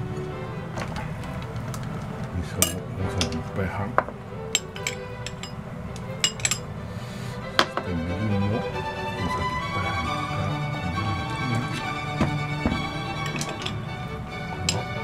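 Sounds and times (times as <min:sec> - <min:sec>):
background music: 0:00.0 - 0:15.0
spoon and chopsticks clinking dish: 0:02.6 - 0:03.5, 0:04.5 - 0:06.7, 0:12.2 - 0:13.8, 0:14.6 - 0:15.0
spoon scraping: 0:04.5 - 0:05.6.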